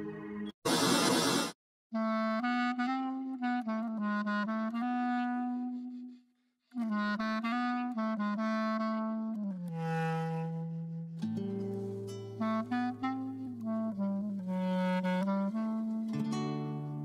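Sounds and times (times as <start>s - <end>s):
loud burst of noise: 0.6s - 1.6s
wind instrument melody: 2.0s - 17.0s.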